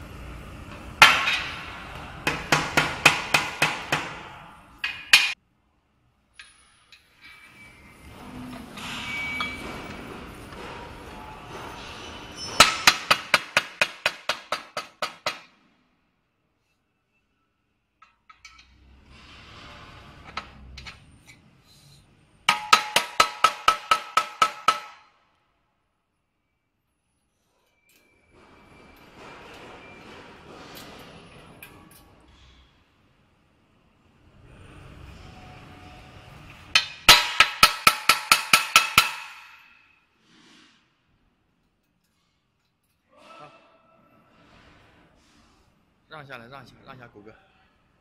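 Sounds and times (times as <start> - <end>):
mallet striking metal tube: 22.5 - 25.0, 36.8 - 39.8.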